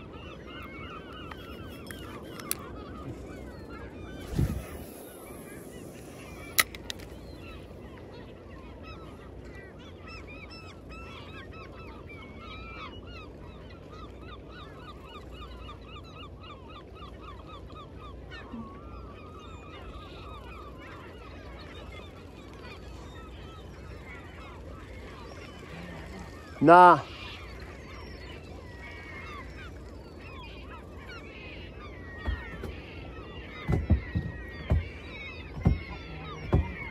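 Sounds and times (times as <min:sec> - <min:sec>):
gulls calling: 0:00.0 - 0:36.9
sharp click: 0:06.4 - 0:07.2.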